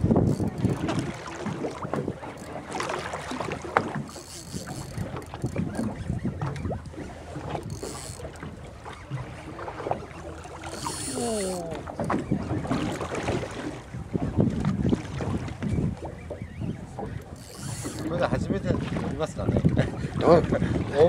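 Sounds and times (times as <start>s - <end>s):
sea noise: 0.0s - 21.0s
wind on microphone: 0.0s - 21.0s
fishing reel clicks and knocks: 0.2s - 0.9s, 4.0s - 6.6s, 7.6s - 8.4s, 10.7s - 11.7s, 17.3s - 18.1s.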